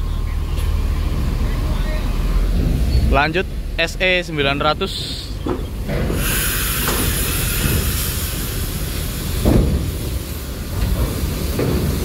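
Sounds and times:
coach engine rumbling: 0.0s - 12.0s
steady hiss: 6.0s - 12.0s
heavy thump: 9.4s - 12.0s.

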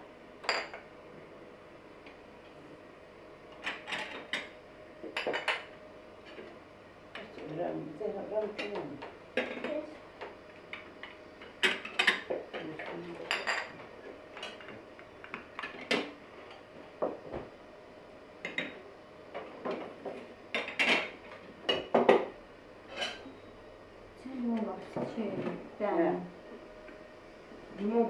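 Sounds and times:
glass cups clinking on saucers: 13.3s - 13.8s.

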